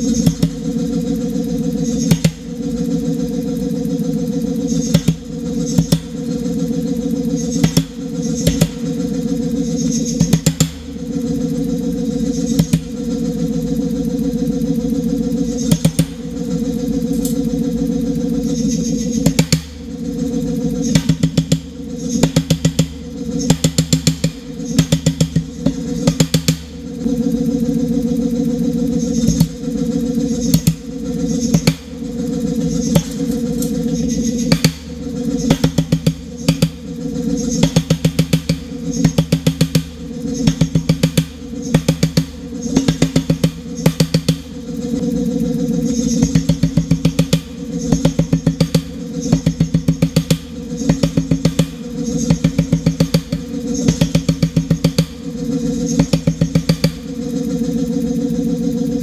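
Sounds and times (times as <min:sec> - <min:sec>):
power hammer striking hot steel: 0:00.0 - 0:01.1, 0:01.7 - 0:02.6, 0:04.7 - 0:06.3, 0:07.4 - 0:09.0, 0:09.8 - 0:11.4, 0:12.2 - 0:13.0, 0:15.6 - 0:16.4, 0:19.2 - 0:19.9, 0:20.9 - 0:26.9, 0:29.1 - 0:29.6, 0:30.4 - 0:32.1, 0:32.7 - 0:36.9, 0:37.5 - 0:44.7, 0:46.2 - 0:55.3, 0:55.9 - 0:57.1
hammer motor running: 0:00.0 - 0:59.0
steady low hum: 0:00.0 - 0:59.0.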